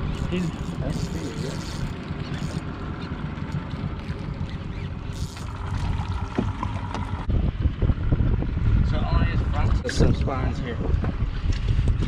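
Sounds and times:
water splashing beside boat: 0:00.0 - 0:07.3.

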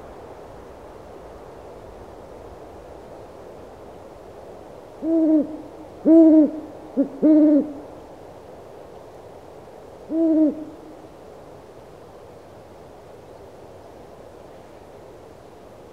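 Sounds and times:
steady low hiss: 0:00.0 - 0:15.9
owl hooting: 0:05.0 - 0:07.9, 0:10.1 - 0:11.0.

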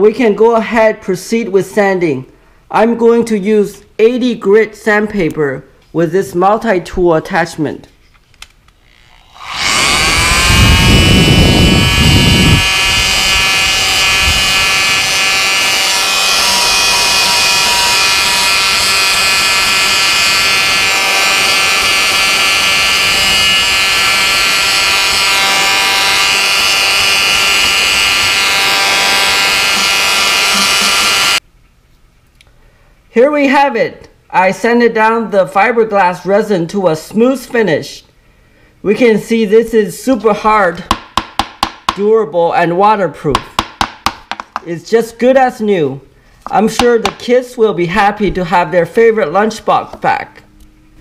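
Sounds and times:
oscillating multi-tool sanding: 0:08.9 - 0:31.4.

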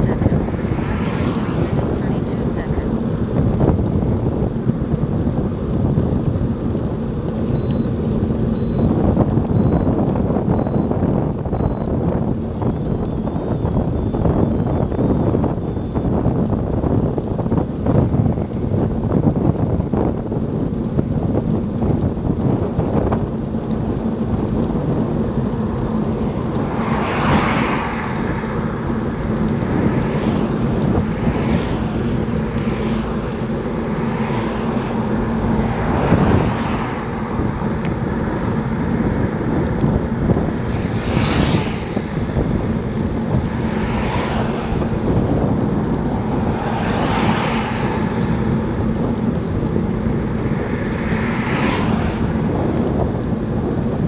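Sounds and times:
passing vehicles whooshing: 0:00.0 - 0:54.0
wind buffeting microphone: 0:00.0 - 0:54.0
low hum: 0:12.5 - 0:16.1.

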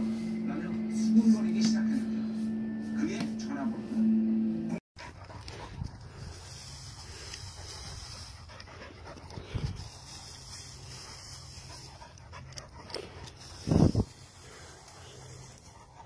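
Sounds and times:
dog panting: 0:05.0 - 0:16.0.

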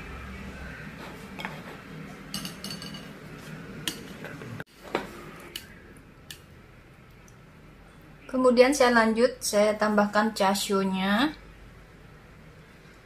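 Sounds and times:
knife and dishes clinking: 0:02.3 - 0:04.4.

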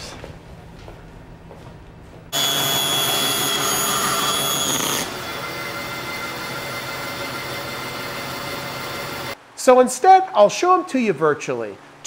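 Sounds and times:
band saw motor whine: 0:02.4 - 0:09.4.

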